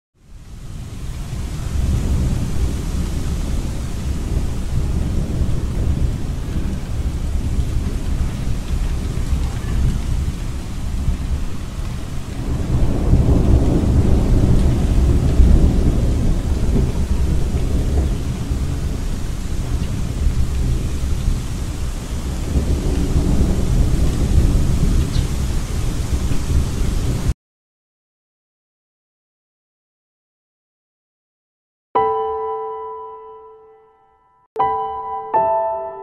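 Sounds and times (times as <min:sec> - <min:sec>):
rain-like hiss: 0:00.2 - 0:27.4.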